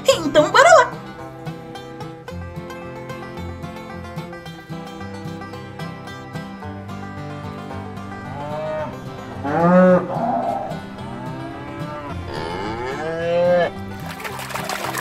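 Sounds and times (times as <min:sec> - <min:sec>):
background music: 0:00.0 - 0:15.0
cattle mooing: 0:08.1 - 0:13.9.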